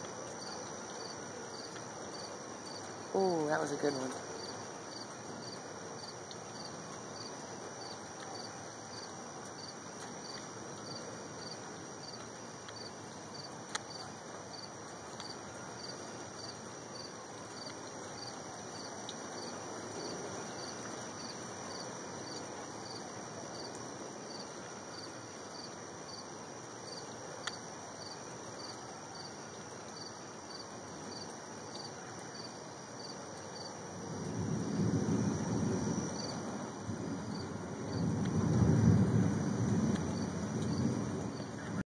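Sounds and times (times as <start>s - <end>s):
crickets chirping: 0.0s - 41.8s
outdoor background hiss: 0.0s - 41.8s.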